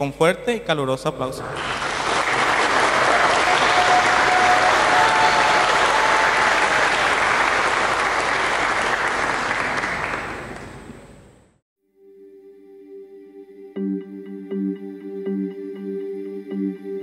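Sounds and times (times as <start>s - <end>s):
congregation applauding: 1.4s - 11.2s.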